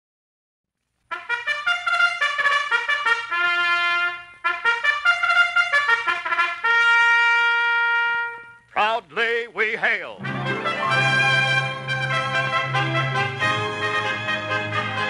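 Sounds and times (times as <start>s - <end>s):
brass fanfare with trumpets: 1.1s - 15.0s.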